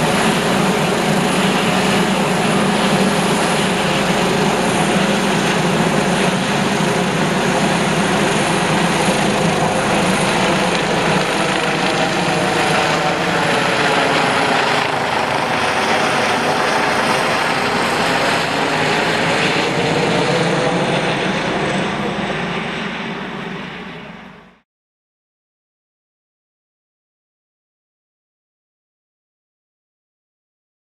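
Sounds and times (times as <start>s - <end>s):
helicopter flying overhead: 0.0s - 24.6s.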